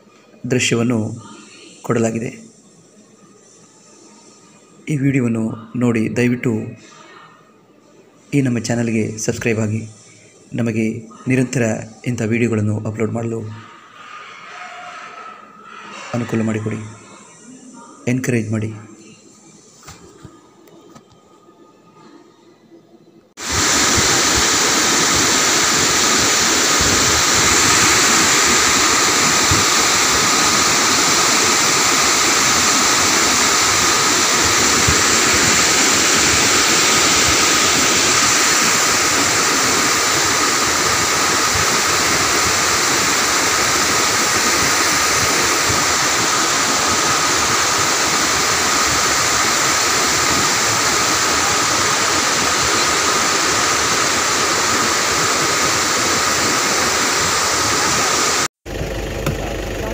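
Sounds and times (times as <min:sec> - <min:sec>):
water rushing over dam gates: 0:23.4 - 0:58.5.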